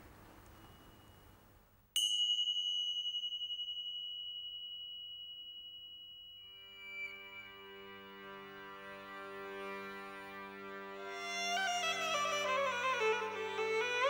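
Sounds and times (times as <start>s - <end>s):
small cymbals ringing: 0.4s - 9.0s.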